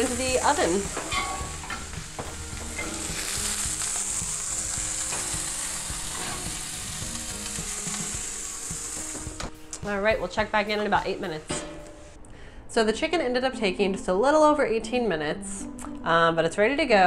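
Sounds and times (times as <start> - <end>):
chicken sizzling in a skillet: 0.0 - 9.5.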